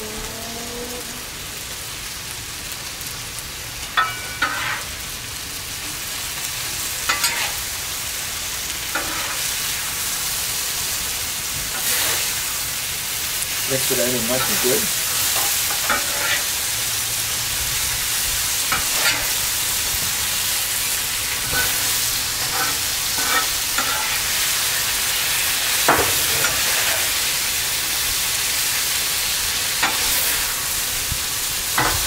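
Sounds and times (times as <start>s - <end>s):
food sizzling on a griddle: 0.0s - 32.0s
metal spatula scraping steel: 4.0s - 4.9s, 7.1s - 7.6s, 9.0s - 9.5s, 15.4s - 16.5s, 21.3s - 24.3s.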